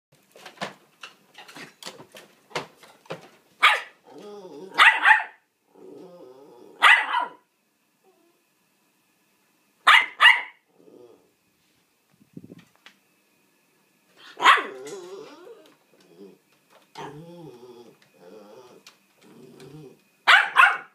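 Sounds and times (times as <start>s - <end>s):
small dog barking: 3.6s - 4.0s, 4.7s - 5.4s, 6.8s - 7.4s, 9.8s - 10.6s, 14.3s - 14.9s, 20.2s - 20.9s
dog grumbling: 4.0s - 4.9s, 5.7s - 6.9s, 10.7s - 11.4s, 14.5s - 20.0s.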